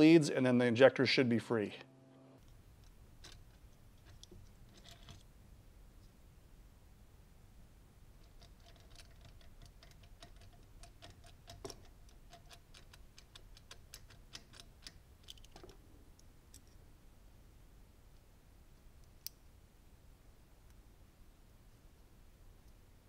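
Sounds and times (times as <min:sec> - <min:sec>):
metal clips and connectors clicking: 0:02.4 - 0:05.3, 0:08.2 - 0:16.8.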